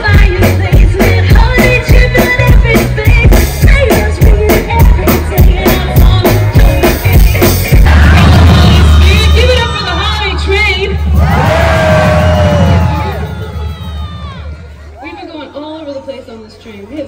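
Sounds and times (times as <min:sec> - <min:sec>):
woman singing: 0:00.0 - 0:09.6
drum kit beat: 0:00.0 - 0:14.3.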